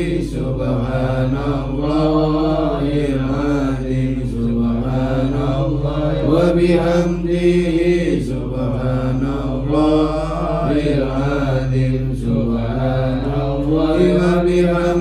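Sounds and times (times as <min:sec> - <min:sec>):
men chanting over loudspeaker: 0:00.0 - 0:15.0.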